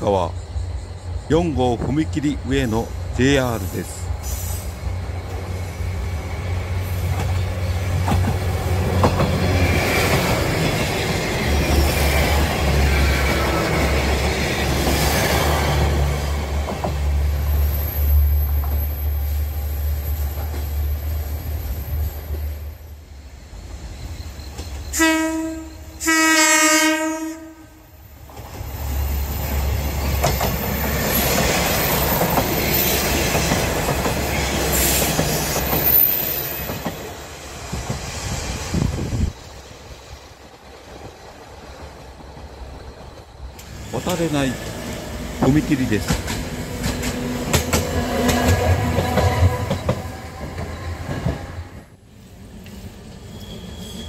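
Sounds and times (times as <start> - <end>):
train wheels on rails: 0.0 - 27.0, 28.0 - 54.0
diesel railcar engine drone: 0.0 - 54.0
train horn: 24.9 - 28.0, 47.3 - 50.8.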